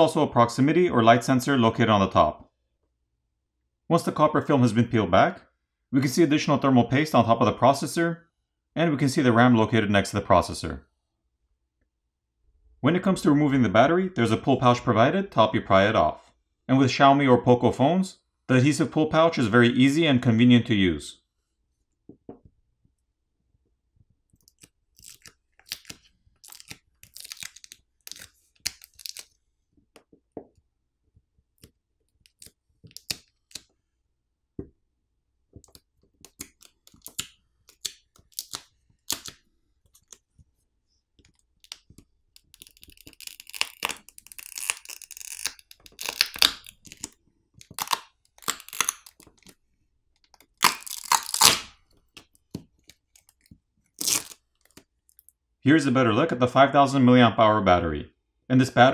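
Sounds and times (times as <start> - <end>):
adhesive crackling and clicking: 24.3 - 29.4, 31.6 - 33.7, 35.6 - 40.2, 41.2 - 55.4
plastic film peeling and crinkling: 24.4 - 29.4, 31.6 - 33.7, 35.6 - 40.3, 41.2 - 55.3.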